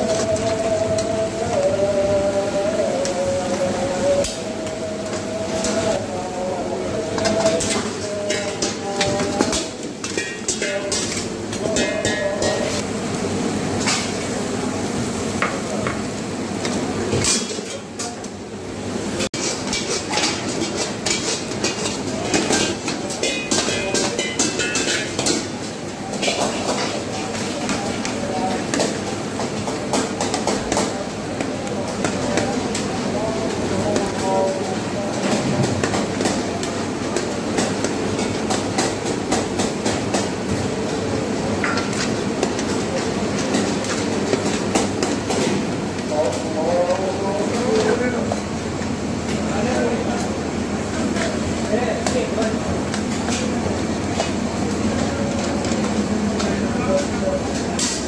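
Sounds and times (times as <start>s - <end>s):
gas burner roaring: 0.0s - 58.0s
sizzling: 0.0s - 58.0s
metal ladles clinking on woks: 7.1s - 12.8s, 16.6s - 18.4s, 19.3s - 40.6s
ladle clinking on metal pan: 19.7s - 25.4s.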